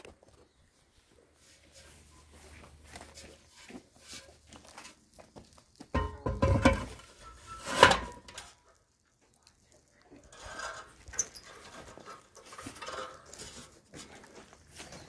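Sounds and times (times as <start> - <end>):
metal pipe knocking and scraping: 5.8 - 8.5, 10.3 - 13.8
metal clatter: 5.9 - 8.6.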